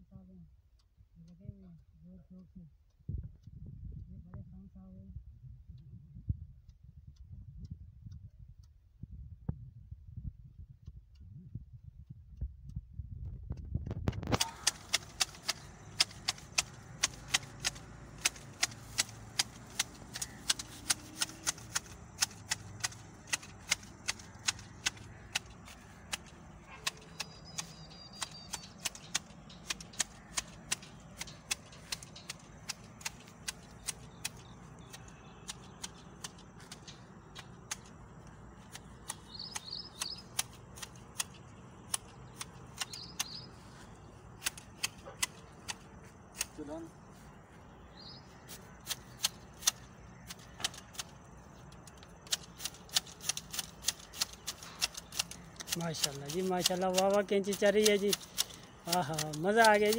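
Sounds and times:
hedge shears snipping: 0:14.2 - 0:47.3, 0:48.2 - 0:59.9.

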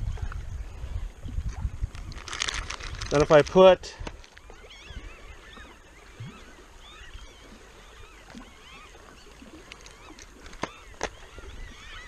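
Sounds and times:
wind rumble on microphone: 0:00.0 - 0:08.1
water lapping: 0:00.0 - 0:12.0
birds chirping: 0:03.1 - 0:12.0.

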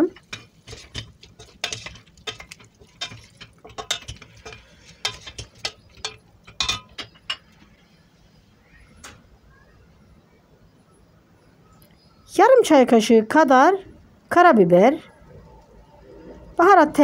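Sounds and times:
spoon scraping against pot: 0:00.0 - 0:07.9
wooden spoon stirring in a pot: 0:00.0 - 0:08.0.

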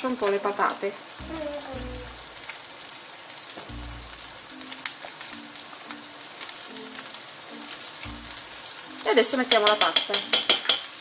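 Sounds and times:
pot bubbling: 0:00.1 - 0:11.0
masher clicking against pot: 0:09.5 - 0:11.0.

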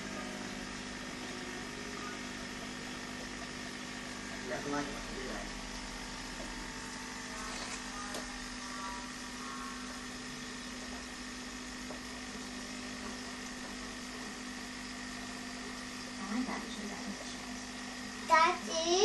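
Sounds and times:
aquarium equipment humming: 0:00.0 - 0:19.0.

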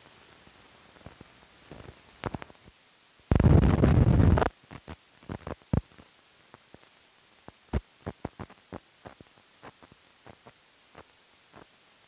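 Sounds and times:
burst of rough noise: 0:03.3 - 0:04.5.

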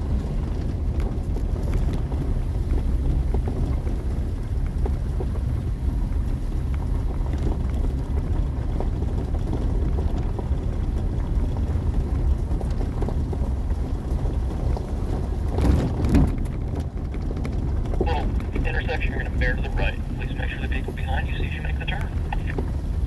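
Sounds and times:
vehicle rumbling over gravel: 0:00.0 - 0:21.0
knocks and rattles over bump: 0:07.2 - 0:18.6.

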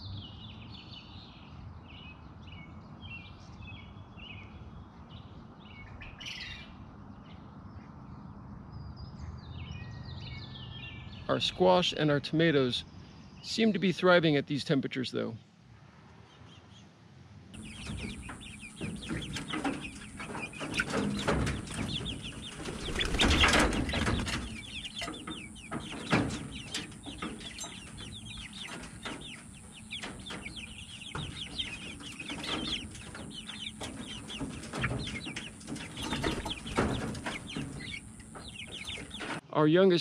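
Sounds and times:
chickens peeping and clucking: 0:17.6 - 0:39.4
wings flapping: 0:17.6 - 0:39.4.

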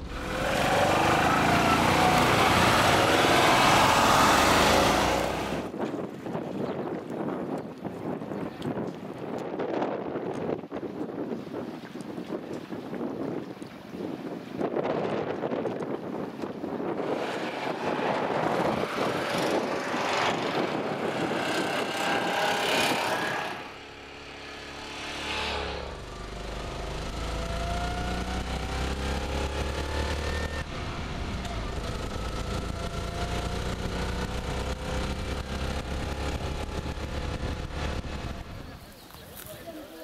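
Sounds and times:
small car engine droning: 0:00.0 - 0:05.7, 0:16.8 - 0:39.2
wind noise on microphone: 0:03.7 - 0:39.7
small engines running: 0:17.0 - 0:39.5.

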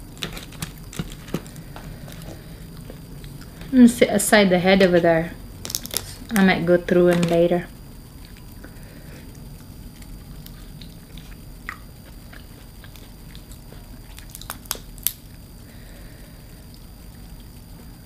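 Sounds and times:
chewing seafood: 0:08.1 - 0:15.6.

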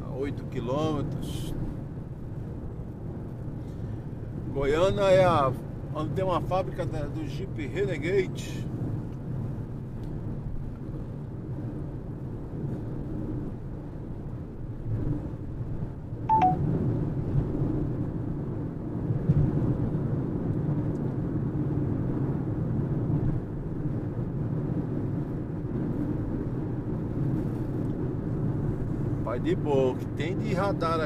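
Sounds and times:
car road and engine rumble: 0:00.0 - 0:31.0
electronic beep: 0:16.3 - 0:16.6.

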